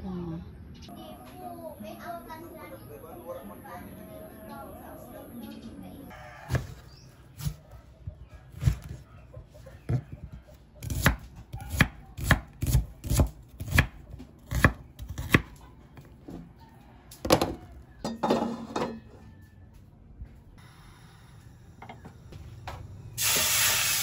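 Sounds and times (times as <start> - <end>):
knife chopping on wooden board: 10.8 - 15.5.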